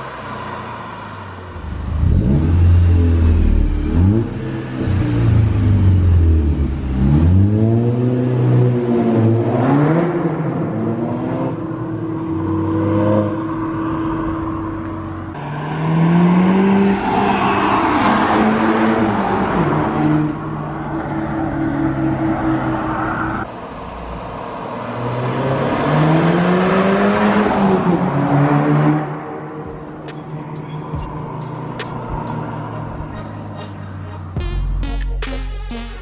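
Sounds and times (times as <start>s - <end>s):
car engine accelerating hard: 1.6s - 20.4s.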